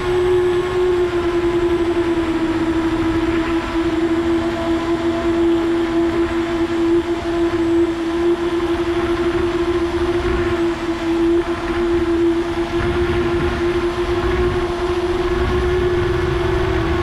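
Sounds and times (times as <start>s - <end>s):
low rumble of wind: 0.0s - 17.0s
quadcopter motors whining: 0.0s - 17.0s.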